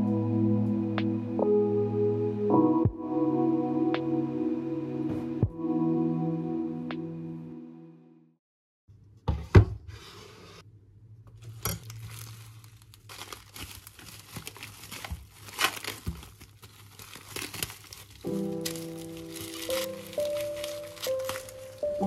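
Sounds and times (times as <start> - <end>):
crinkling and rustling: 11.3 - 22.0.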